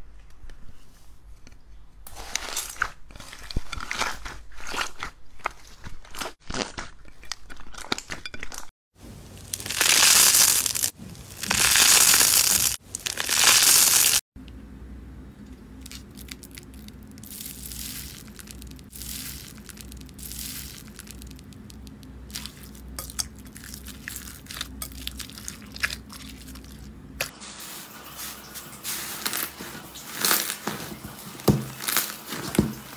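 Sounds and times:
loud crunching squeezes: 9.2 - 14.2, 15.9 - 26.6
slime crackling: 9.3 - 14.2, 15.8 - 26.9
foam-bead slime crackles and pops: 9.4 - 14.2, 15.8 - 22.8, 29.0 - 32.9.

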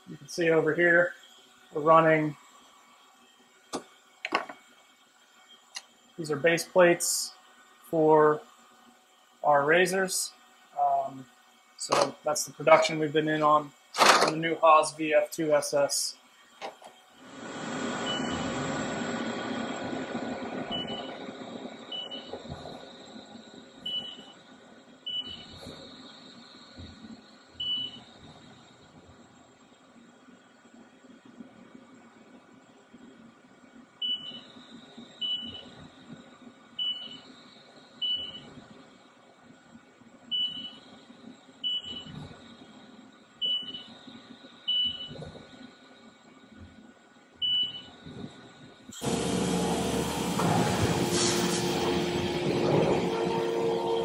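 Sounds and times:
machine steady hum: 0.0 - 54.0
high-pitched end mill squeals: 49.0 - 54.0
milling machine cutting metal: 49.0 - 54.0.

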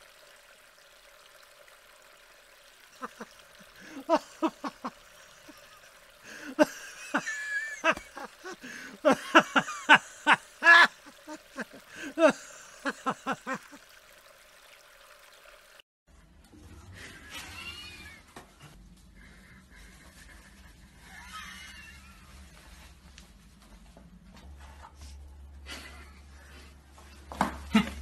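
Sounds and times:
stream water running: 0.0 - 15.8.

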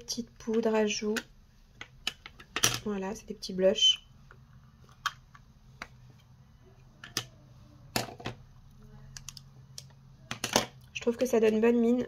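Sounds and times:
plastic compacts clicking: 0.5 - 2.9, 7.0 - 7.4, 9.1 - 11.6
faint low hum: 2.7 - 12.0.

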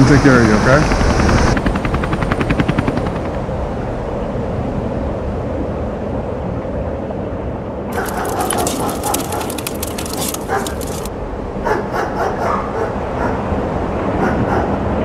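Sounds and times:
helicopter rotor chop: 0.8 - 3.5, 7.9 - 11.1.

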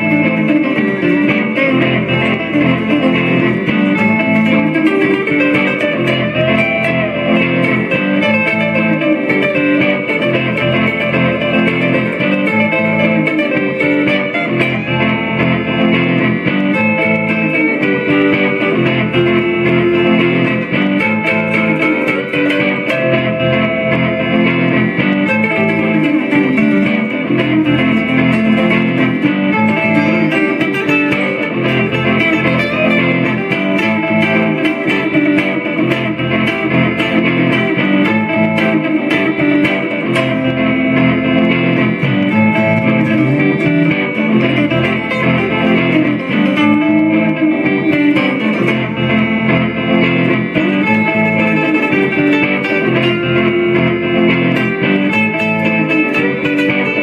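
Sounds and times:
electric guitar through amplifier: 0.0 - 57.0.

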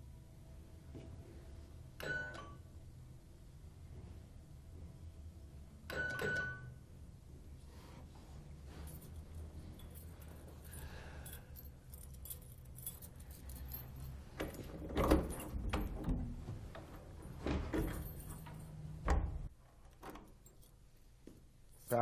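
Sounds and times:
keys jangling: 8.7 - 16.1, 17.8 - 19.0, 20.2 - 22.0.

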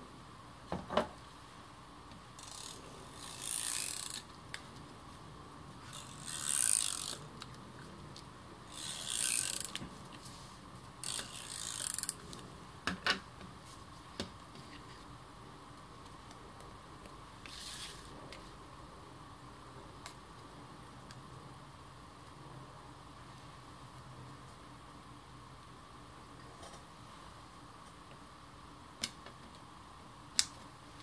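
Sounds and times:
tape runner zipping: 8.8 - 9.8.

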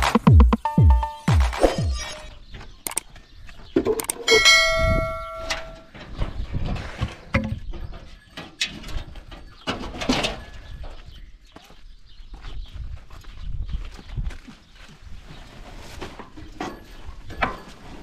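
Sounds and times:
bell-like metallic ring: 4.3 - 5.9.

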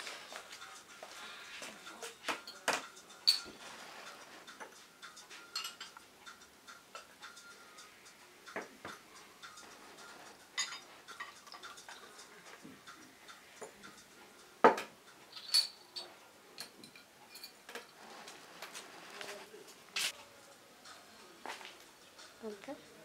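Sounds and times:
glass clinking on tabletop: 2.3 - 3.6, 5.4 - 6.0, 10.6 - 12.0, 14.6 - 17.9.

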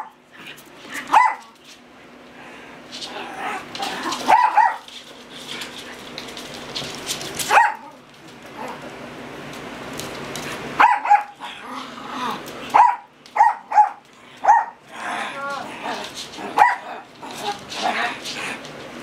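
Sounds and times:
dogs barking high-pitched: 1.0 - 1.6, 4.2 - 4.9, 7.5 - 8.0, 10.8 - 11.6, 12.7 - 14.8, 16.5 - 17.1.

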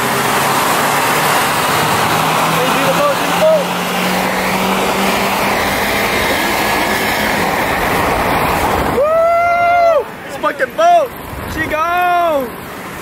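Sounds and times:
wind and road noise: 0.0 - 13.0
person yelling: 9.0 - 10.1.

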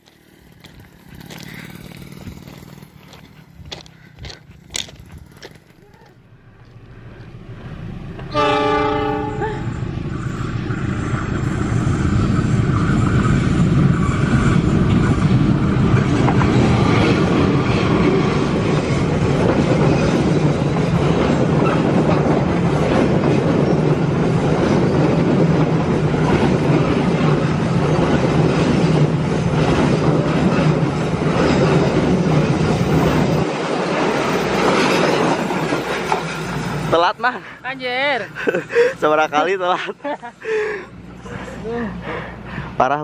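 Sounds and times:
wheels clicking over rail joints: 0.0 - 7.4
diesel locomotive rumble: 0.0 - 43.0.

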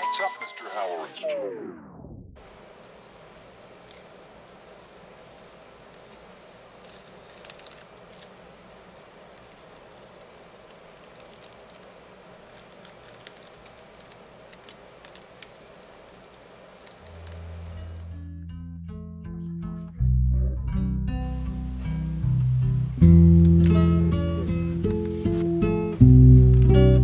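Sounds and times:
masking tape being peeled: 2.4 - 18.3.

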